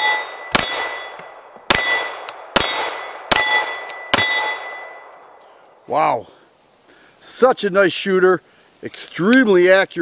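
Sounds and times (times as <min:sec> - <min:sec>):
pistol shots: 0:00.0 - 0:04.9
steel plate target ringing: 0:00.0 - 0:05.2.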